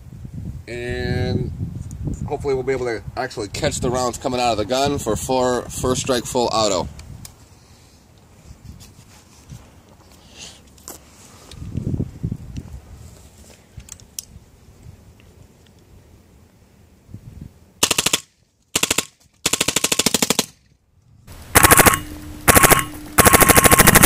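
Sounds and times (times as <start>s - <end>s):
paintball marker firing rapid pops: 17.8s - 20.6s, 21.5s - 24.0s.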